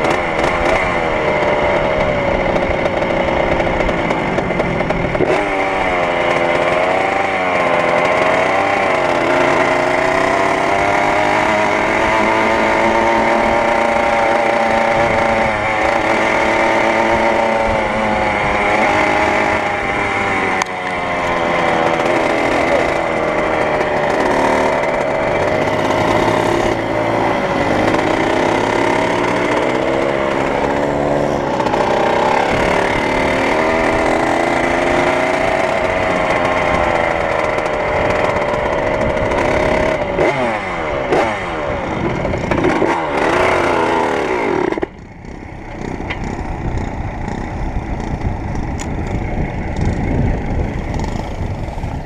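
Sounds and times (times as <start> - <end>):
two-stroke motorcycle engine revving: 0.0 - 52.0
low uneven engine rumble: 40.8 - 52.0.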